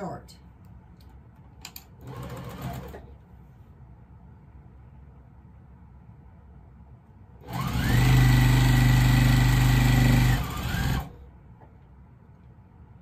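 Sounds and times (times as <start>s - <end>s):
electric sewing machine whine: 2.0s - 3.1s, 7.4s - 11.2s.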